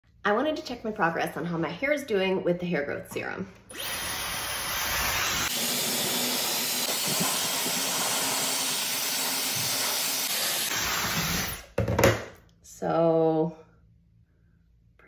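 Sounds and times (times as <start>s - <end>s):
hair dryer blowing: 3.7s - 11.6s.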